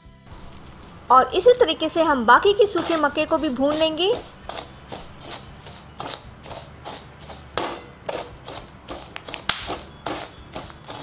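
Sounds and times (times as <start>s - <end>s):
corn kernels popping: 0.3s - 2.0s, 6.0s - 11.0s
metal skimmer scraping corn in salt: 2.6s - 11.0s.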